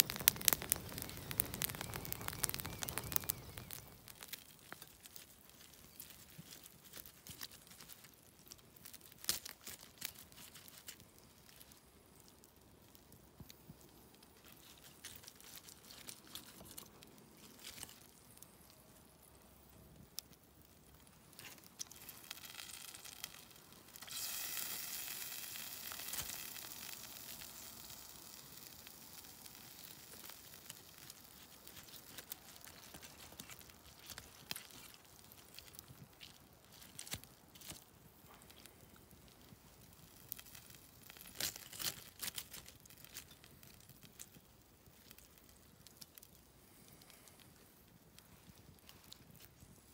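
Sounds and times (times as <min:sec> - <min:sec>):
crackles and clicks: 0:00.0 - 0:49.9
hiss: 0:24.0 - 0:27.1.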